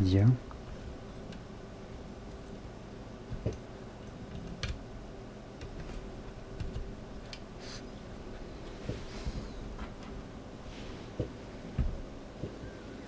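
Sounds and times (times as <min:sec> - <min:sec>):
low background hum: 0:00.0 - 0:13.0
faint clicks and taps: 0:03.3 - 0:04.8, 0:05.6 - 0:07.4.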